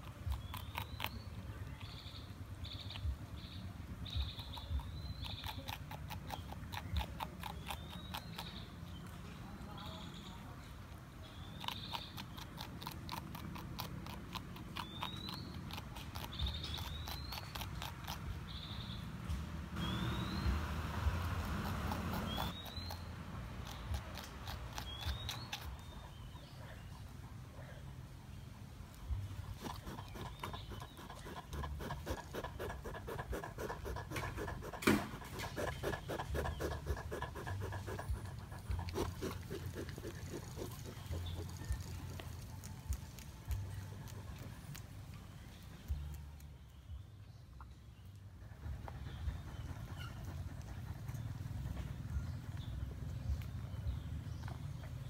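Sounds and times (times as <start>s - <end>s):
animal chewing crunchy greens: 0.0s - 9.4s, 11.3s - 19.0s, 19.8s - 27.1s, 28.9s - 47.0s.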